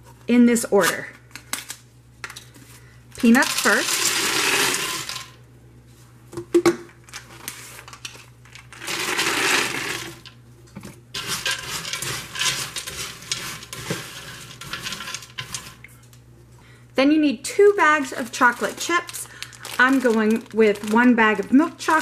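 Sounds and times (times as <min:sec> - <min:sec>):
peanuts poured into a pot: 0:03.2 - 0:05.4, 0:08.7 - 0:10.3, 0:11.2 - 0:15.8
hand spreading peanuts: 0:08.7 - 0:10.2, 0:11.2 - 0:15.8, 0:18.0 - 0:22.0.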